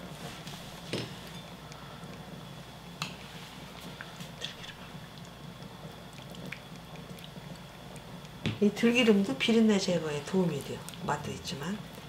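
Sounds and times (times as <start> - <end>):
water simmering in a pan: 0.0 - 12.0.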